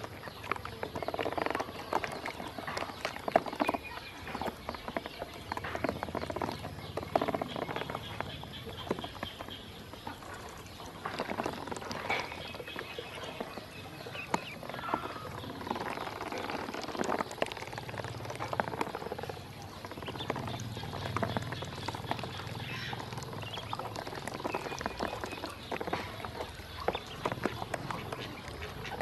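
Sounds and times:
ducklings peeping: 19.8s - 29.0s.

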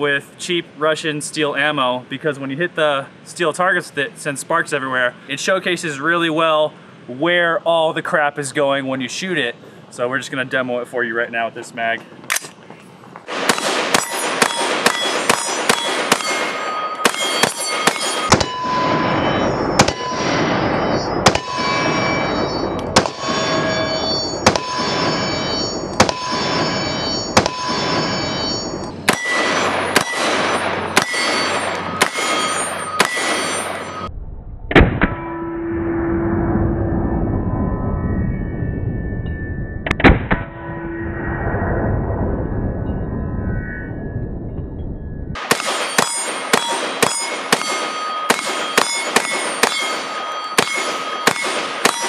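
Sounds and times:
rifle shots: 13.3s - 34.1s, 45.4s - 52.0s
steel targets clanging: 13.4s - 34.1s, 45.4s - 52.0s.

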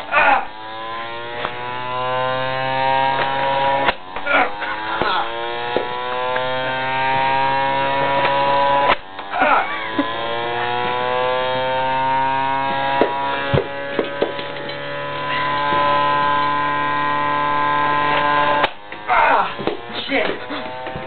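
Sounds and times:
pitching machine motor whining: 0.0s - 21.0s
sharp knocks: 4.9s - 6.5s, 12.6s - 14.9s.

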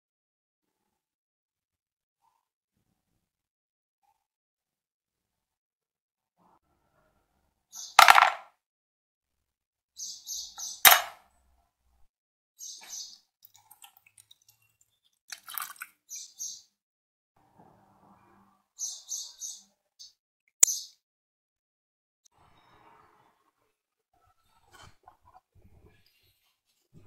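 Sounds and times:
small bird chirping: 7.7s - 8.1s, 10.0s - 11.0s, 12.6s - 13.3s, 16.1s - 16.7s, 18.8s - 21.0s
metal parts handled in plastic tub: 8.0s - 8.4s, 10.9s - 11.2s
sharp click: 10.9s - 11.2s
liquid pouring: 15.3s - 15.9s.

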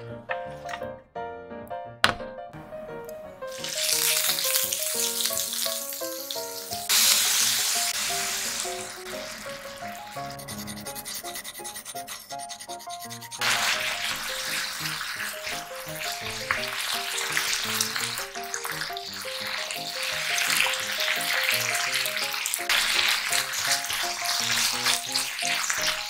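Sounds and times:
meat sizzling in oil: 3.5s - 10.7s, 13.4s - 26.0s
ginger scraping on a grater: 9.8s - 13.8s.

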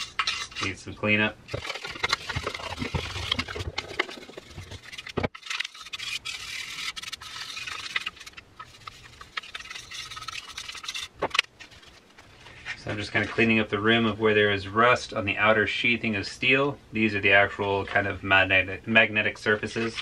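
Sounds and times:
scrubbing rust off metal: 0.0s - 13.6s.

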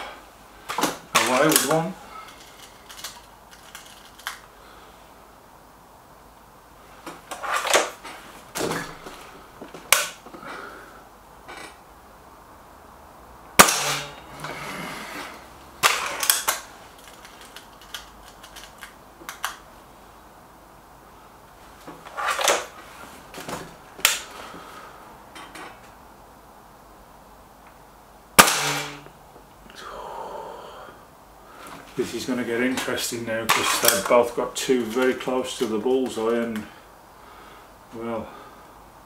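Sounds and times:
air rifle shot: 13.6s - 14.2s, 28.4s - 29.0s.

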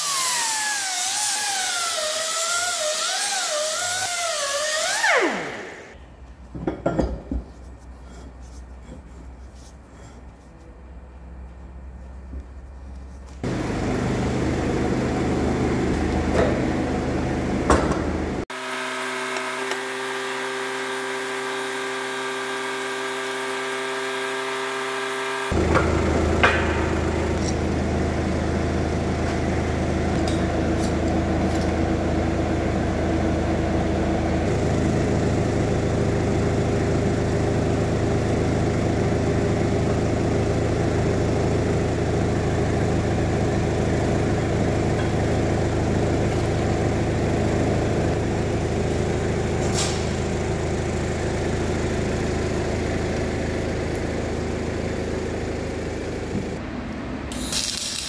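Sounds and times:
forklift engine idling: 25.5s - 56.6s.

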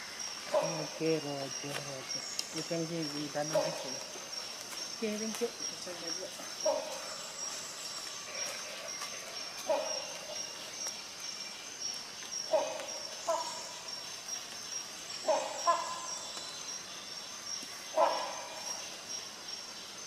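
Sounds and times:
hornbill calling: 12.4s - 16.9s, 17.8s - 19.3s.

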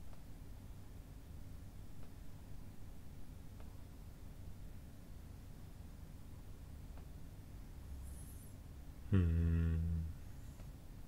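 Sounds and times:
low hum: 8.9s - 10.7s.

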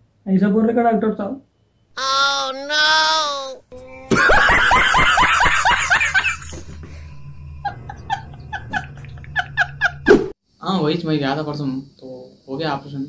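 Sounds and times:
low hum: 3.7s - 10.4s
loud rapid laughter: 4.1s - 10.2s.

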